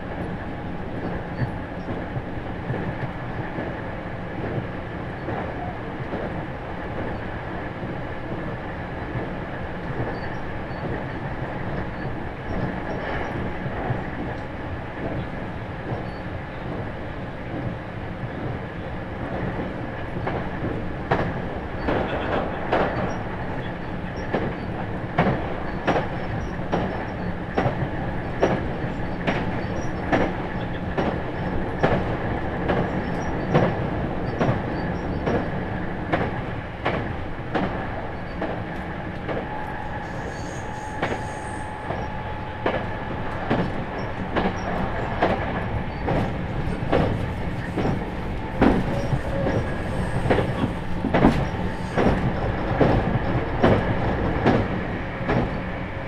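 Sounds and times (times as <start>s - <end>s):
train rolling rumble: 0.0s - 56.0s
wheels clicking over rail joints: 42.6s - 55.6s.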